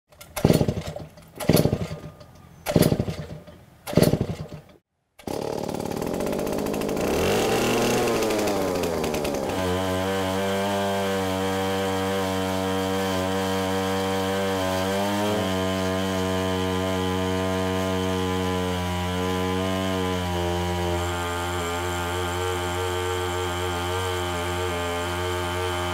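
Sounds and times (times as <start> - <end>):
chainsaw revving: 0.2 - 25.9.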